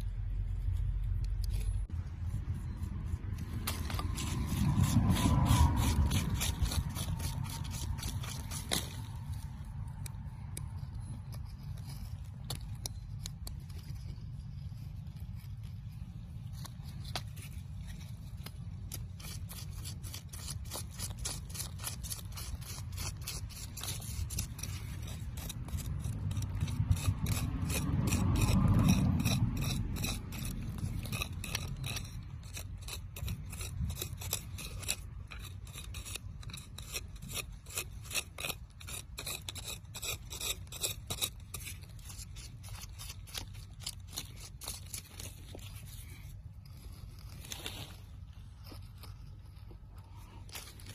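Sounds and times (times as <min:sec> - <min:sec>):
low rumble: 0:00.0 - 0:19.6, 0:24.3 - 0:32.5
hand tool scraping gritty soil: 0:00.0 - 0:50.9.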